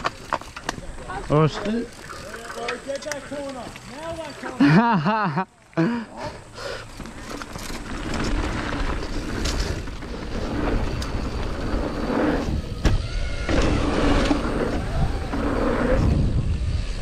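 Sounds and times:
bike rattling: 0.0s - 17.0s
tyres rolling on dirt: 0.0s - 17.0s
wind rushing over microphone: 8.3s - 17.0s.

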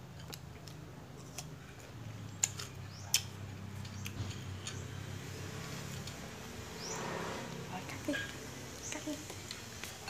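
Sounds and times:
mouth clicks and smacks: 2.4s - 4.2s.

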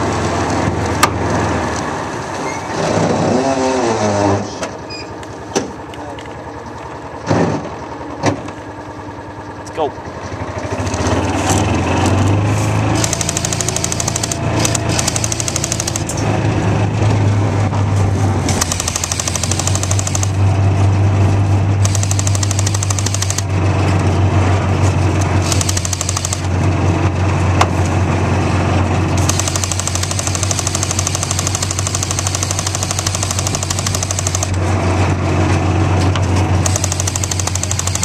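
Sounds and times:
utility vehicle engine droning: 0.0s - 38.0s
airsoft machine gun firing: 12.9s - 16.2s, 18.5s - 20.4s, 21.8s - 23.5s, 25.4s - 26.5s, 29.2s - 34.6s, 36.6s - 38.0s.

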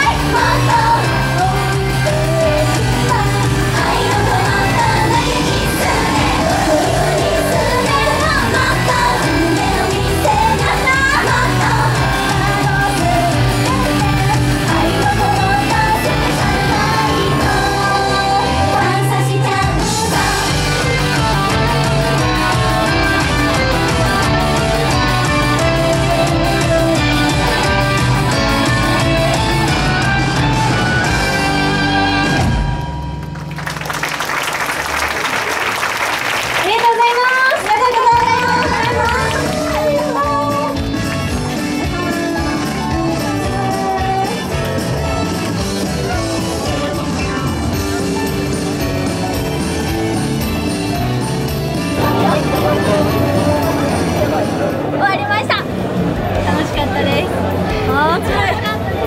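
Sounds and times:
female group singing pop song: 0.0s - 21.6s
loud amplified music: 0.0s - 34.1s, 37.6s - 59.0s
audience cheering and clapping: 31.9s - 43.6s.

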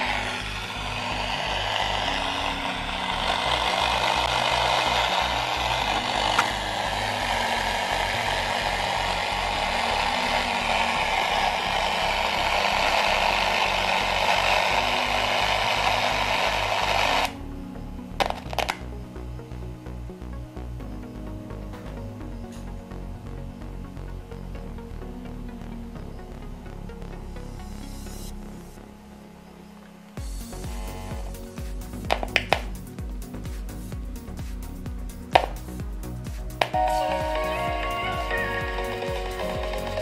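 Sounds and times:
loud hiss: 0.0s - 17.4s, 30.2s - 40.0s
music with steady beat: 0.0s - 40.0s.

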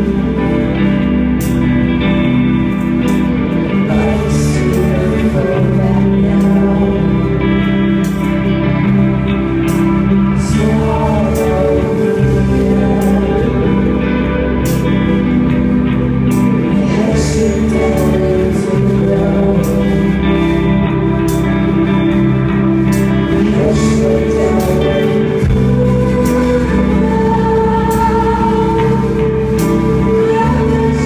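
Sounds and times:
drums: 0.0s - 31.0s
electric guitar chords: 0.0s - 31.0s.

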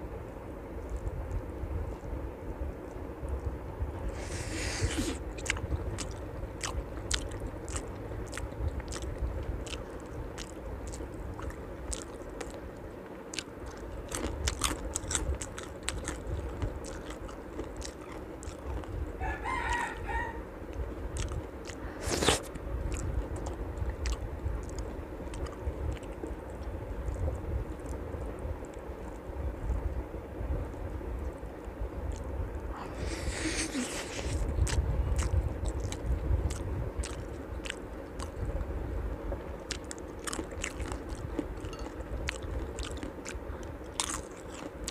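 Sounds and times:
close chewing and crunching: 4.1s - 30.0s, 30.7s - 38.8s, 39.5s - 44.9s.

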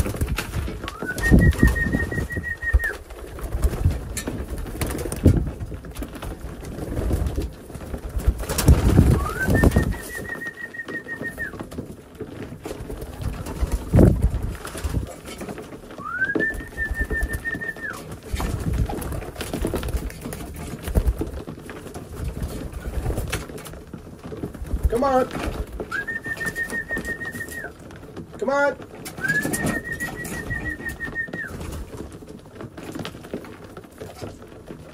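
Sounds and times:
wing flutters and taps: 0.0s - 34.9s
pigeons cooing: 29.2s - 31.7s.

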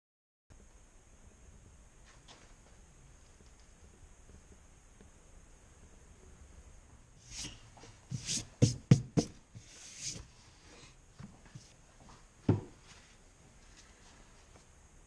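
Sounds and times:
wooden board scraping: 7.2s - 10.3s
wooden knocks on workbench: 12.5s - 12.7s.

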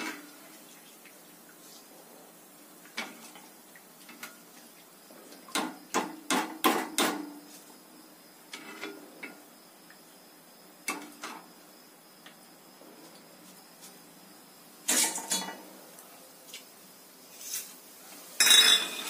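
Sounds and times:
metal utensils clacking: 14.9s - 15.6s, 18.4s - 19.0s.

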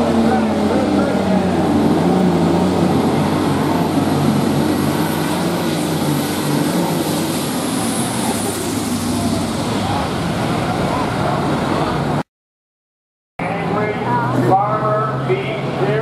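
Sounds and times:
tractor diesel engine under load: 0.0s - 12.2s.

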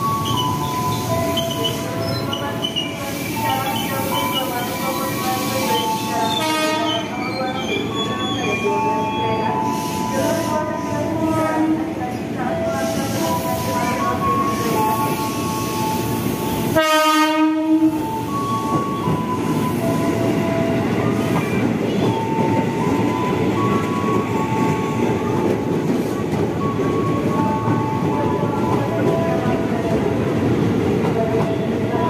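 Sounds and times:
electric train rumbling and whining: 0.0s - 32.0s
train horn: 6.2s - 7.1s, 11.2s - 11.9s, 16.7s - 18.0s.

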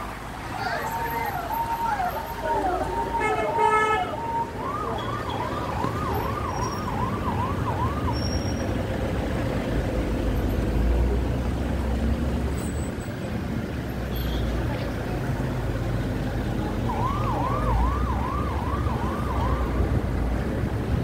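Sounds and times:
car engine and road rumble: 0.0s - 21.0s
vehicle siren yelping: 0.6s - 8.6s, 16.8s - 20.1s.

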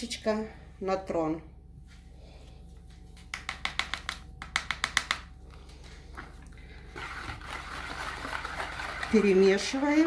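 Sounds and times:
whisk beating batter: 6.8s - 10.0s.

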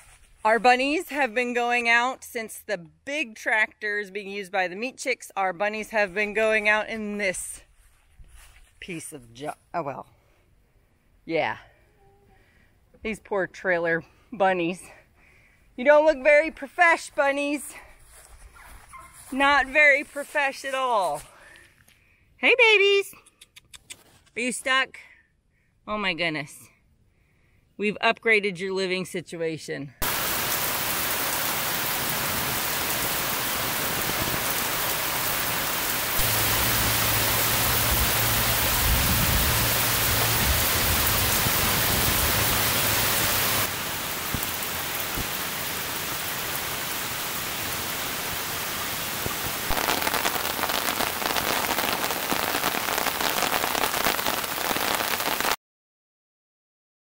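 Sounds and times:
heavy rain on leaves: 30.0s - 55.6s
patter of raindrops: 30.0s - 55.6s
low hum: 36.2s - 41.4s.

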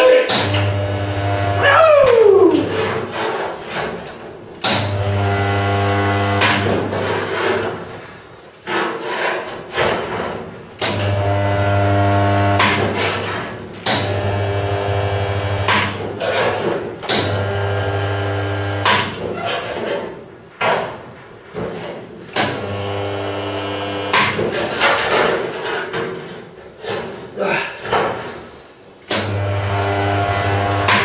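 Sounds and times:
spot welder buzzing: 0.3s - 2.8s, 4.6s - 7.5s, 10.8s - 16.2s, 17.0s - 19.3s, 22.4s - 24.6s, 29.1s - 31.0s.

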